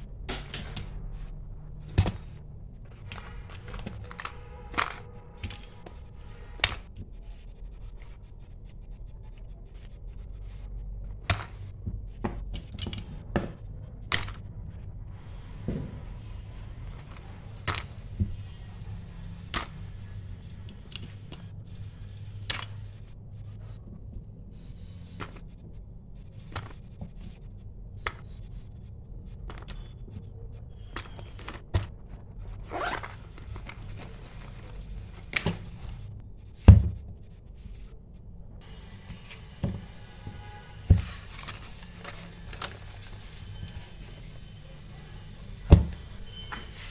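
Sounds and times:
fabric pouch rustling shut: 32.5s - 35.7s.

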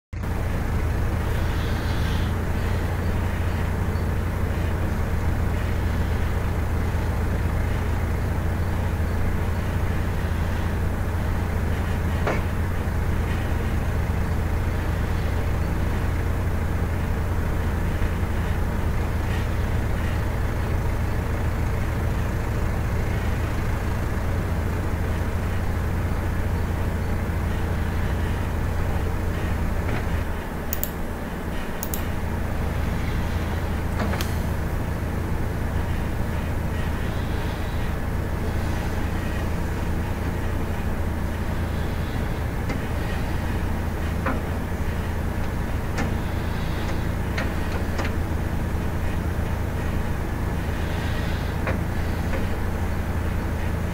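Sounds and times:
backhoe diesel engine running: 0.1s - 53.9s
sharp clicks: 30.7s - 31.0s, 31.8s - 32.2s.

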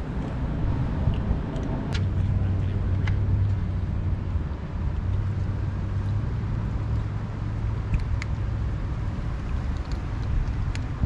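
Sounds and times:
wind rumble on microphone: 0.0s - 11.0s
cats crunching dry kibble: 9.2s - 11.0s.

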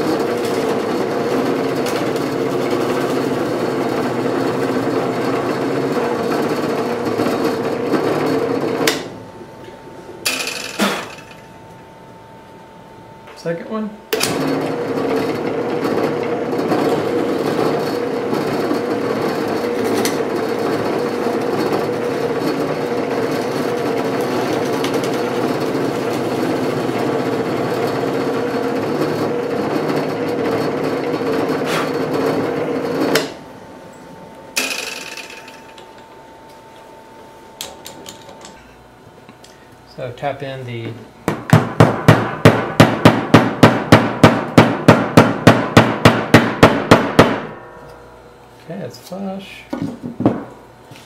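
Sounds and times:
drill press boring through wood: 0.0s - 9.1s, 14.2s - 33.4s.

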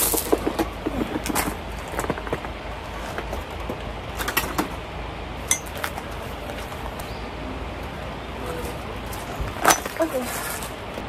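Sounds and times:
steady low hum: 0.0s - 11.0s
dishes and utensils clinking: 5.5s - 5.8s
small metallic clink: 5.5s - 5.8s.

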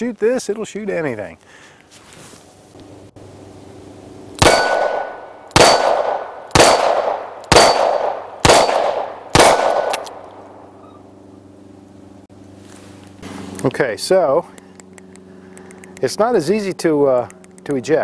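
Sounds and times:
metallic ring of steel target: 4.4s - 9.9s
revolver gunshots: 4.4s - 10.2s.

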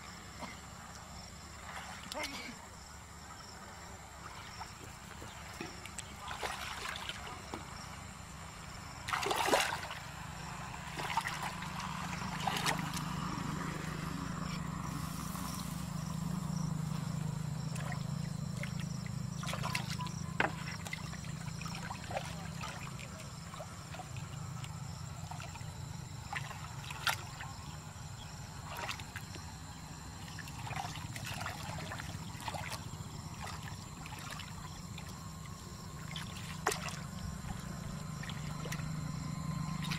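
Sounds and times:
low steady hum: 0.0s - 39.9s
hands splashing in muddy water: 9.1s - 10.0s.

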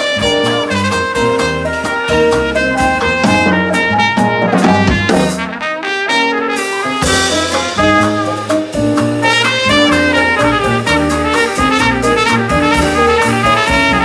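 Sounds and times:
plucked upright bass: 0.0s - 5.6s
drum kit: 0.0s - 14.0s
keyboard: 0.0s - 14.0s
trumpet melody: 0.0s - 14.0s.

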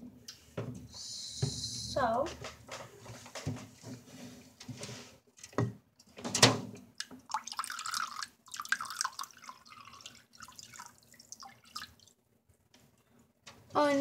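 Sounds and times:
water pouring into a dish: 7.0s - 12.2s.

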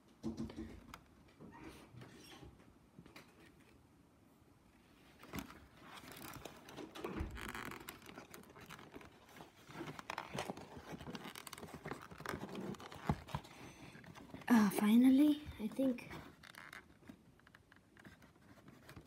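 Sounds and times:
cardboard rustling and tapping: 5.2s - 14.5s, 15.4s - 19.0s.

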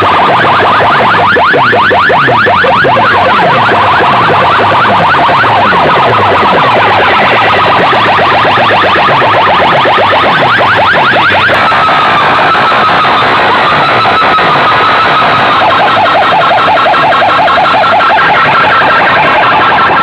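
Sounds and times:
siren-like effect over loudspeakers: 0.0s - 20.0s.

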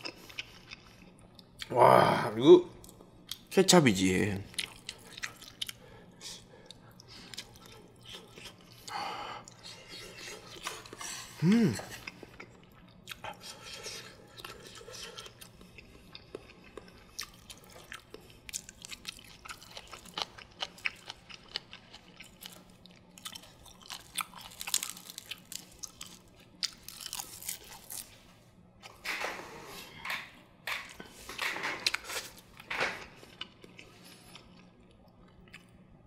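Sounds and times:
person chewing food: 0.0s - 1.8s, 4.5s - 28.3s, 29.6s - 36.0s
person humming: 1.7s - 2.7s, 11.4s - 11.9s.

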